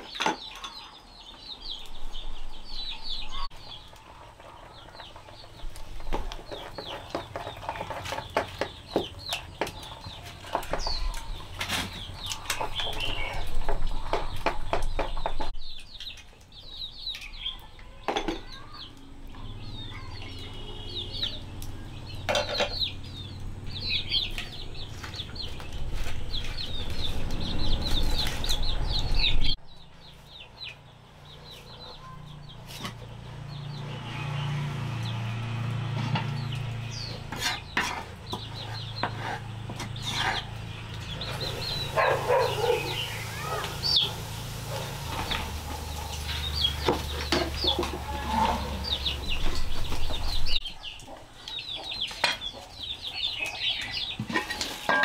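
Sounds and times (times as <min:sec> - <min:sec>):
chickens clucking: 0:03.2 - 0:15.5, 0:36.0 - 0:55.0.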